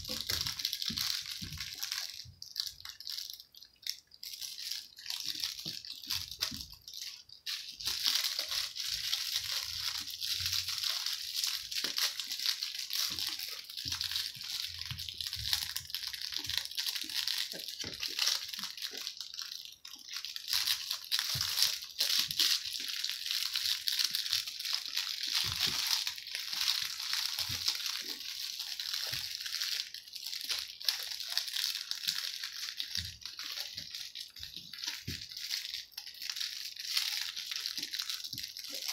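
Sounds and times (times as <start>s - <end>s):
crinkling and rustling toy: 0.0s - 38.9s.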